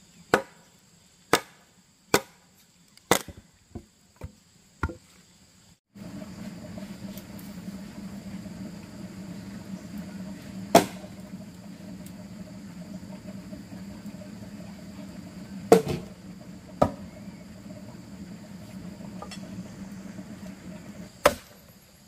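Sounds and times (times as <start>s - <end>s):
steady background hum: 0.1s - 22.0s
axe chopping wood: 0.3s - 0.6s, 1.3s - 2.4s, 3.1s - 3.4s, 10.8s - 11.0s, 21.2s - 21.6s.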